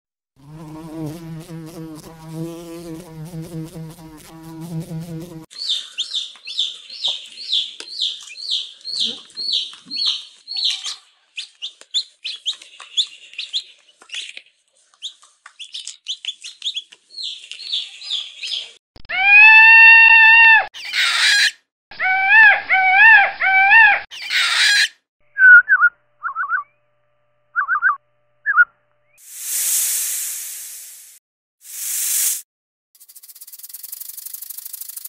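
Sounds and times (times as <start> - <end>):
chick cheeping: 5.6 - 12.6
peacock calling: 19.1 - 24.9.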